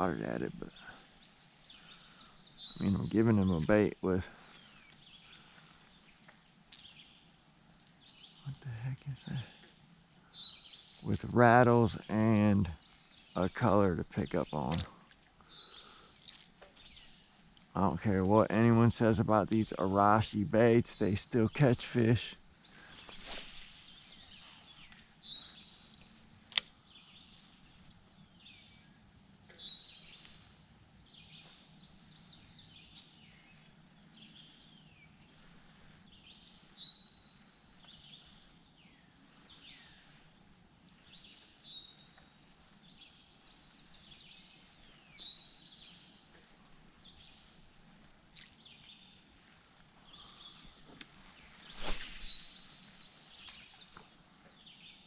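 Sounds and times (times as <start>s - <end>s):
insects singing: 0.0s - 55.0s
sharp click: 26.5s - 26.8s.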